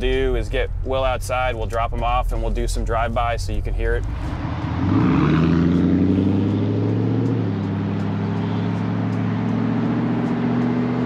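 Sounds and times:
car engine accelerating hard: 0.0 - 11.0.

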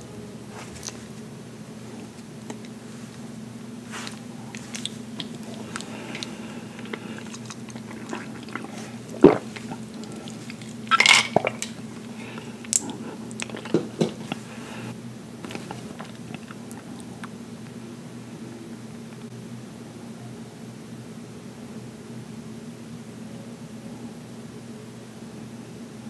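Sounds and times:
steady low hum: 0.0 - 24.6
sipping through a straw: 3.9 - 16.5
ice clinking: 5.2 - 11.9.

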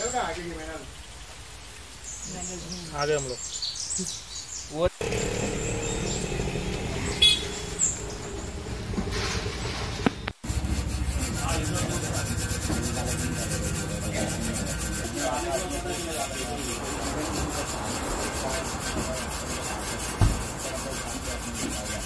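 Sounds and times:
wire scrubber scouring metal: 5.0 - 22.0
dull thump: 20.2 - 20.6.

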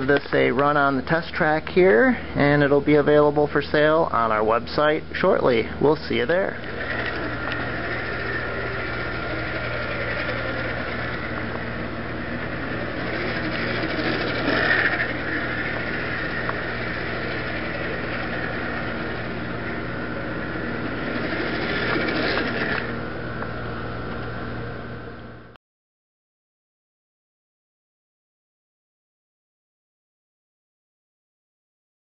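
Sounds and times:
slot car motor whining: 0.0 - 25.5
steady low hum: 0.0 - 25.6.

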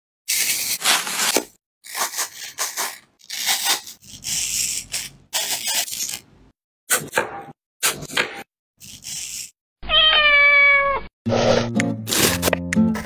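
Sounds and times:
knife cutting crisp apple: 0.3 - 6.3, 11.7 - 13.0.

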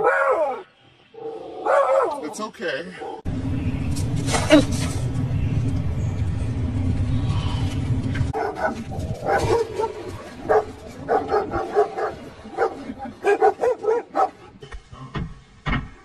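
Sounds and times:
dogs barking: 0.0 - 0.7, 1.6 - 2.3, 8.3 - 14.6
low rumble: 3.3 - 11.6.

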